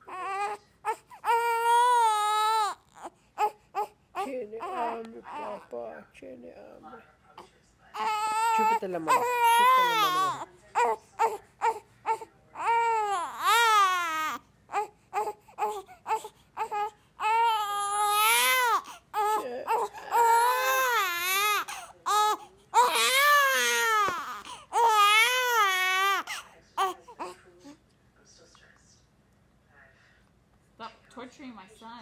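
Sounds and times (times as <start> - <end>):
baby crying: 0.0 - 5.7, 8.0 - 27.4.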